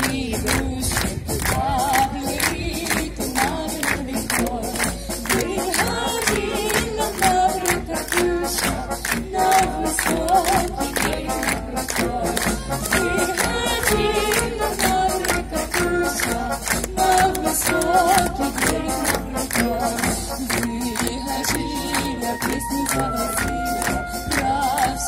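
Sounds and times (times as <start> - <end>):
brass band playing: 0.0 - 25.0
steady drum beat: 0.0 - 25.0.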